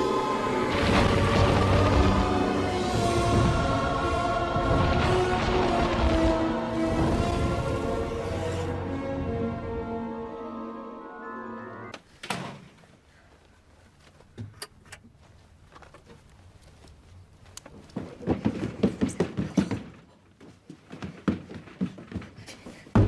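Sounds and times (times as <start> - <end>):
footsteps stomping down wooden stairs: 17.7 - 23.0.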